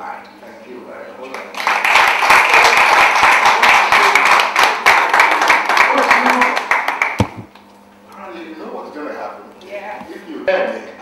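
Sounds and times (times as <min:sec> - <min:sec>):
audience clapping: 0:01.3 - 0:07.6.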